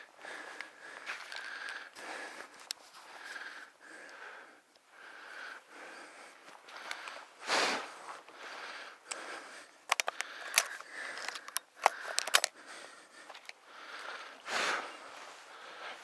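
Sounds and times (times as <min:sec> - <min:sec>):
person breathing heavily: 0:00.0 - 0:16.0
sharp clicks and taps: 0:09.9 - 0:12.6.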